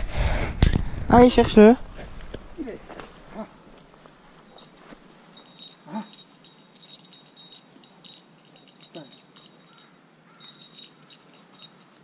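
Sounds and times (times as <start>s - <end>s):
small bell tinkling: 4.4s - 12.0s.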